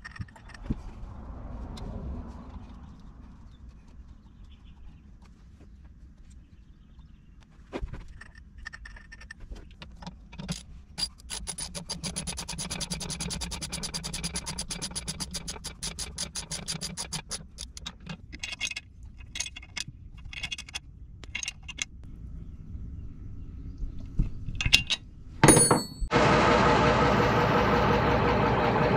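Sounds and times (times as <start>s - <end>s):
metal tool clicks and scrapes: 8.2s - 21.9s
ratchet wrench clicking: 11.0s - 17.8s.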